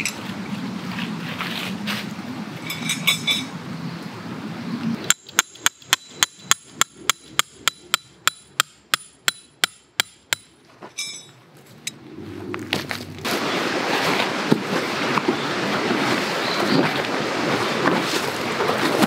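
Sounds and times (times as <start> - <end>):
hammer striking metal tent peg: 5.1 - 11.3
light metallic clinks: 11.0 - 12.0.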